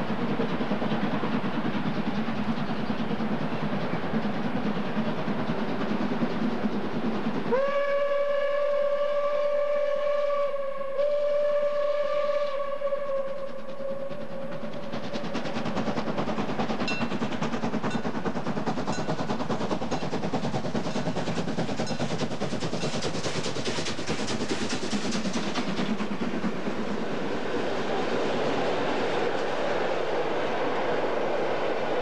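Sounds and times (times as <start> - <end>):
steam locomotive exhaust beating: 0.0 - 32.0
train wheels rumbling: 0.0 - 32.0
steam whistle: 7.5 - 14.5.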